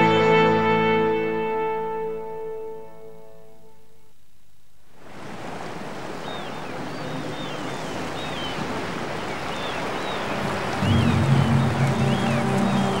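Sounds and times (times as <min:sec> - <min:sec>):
wind: 0:02.2 - 0:13.0
sea waves: 0:04.9 - 0:13.0.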